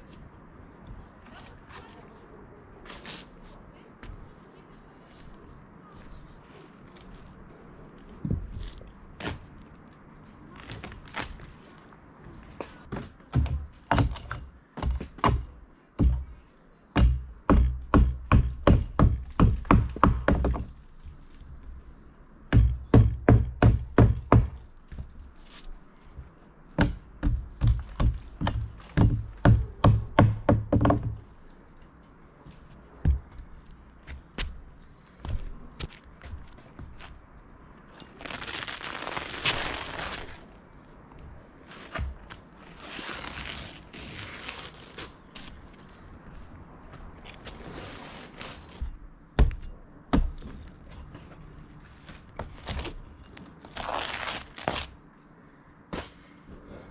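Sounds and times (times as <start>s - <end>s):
scraping on roofing felt: 41.6s - 48.9s.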